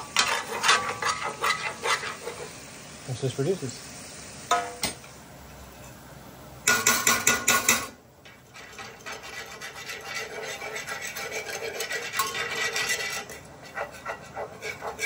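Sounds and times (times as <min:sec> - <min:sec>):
utensil scraping in a pan: 0:00.0 - 0:03.1, 0:06.7 - 0:15.0.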